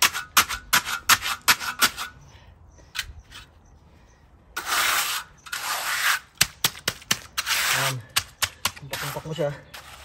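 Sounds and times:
trowel chopping wet concrete: 0:00.0 - 0:02.1, 0:04.6 - 0:10.0.

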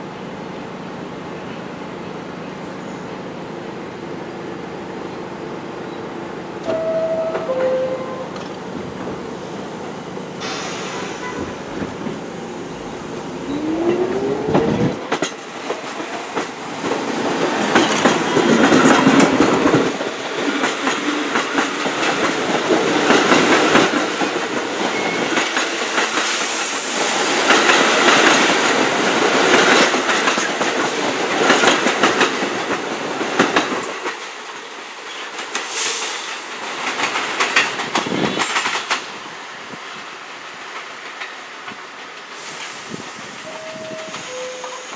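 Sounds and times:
train wheels clattering over rails: 0:13.2 - 0:39.9
rising motor whine: 0:13.4 - 0:15.0.

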